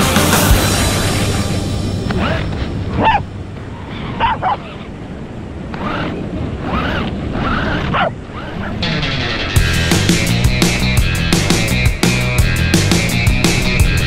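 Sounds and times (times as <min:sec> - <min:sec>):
low rumble: 0:00.0 - 0:05.7
dogs barking: 0:02.2 - 0:04.9, 0:07.6 - 0:08.8.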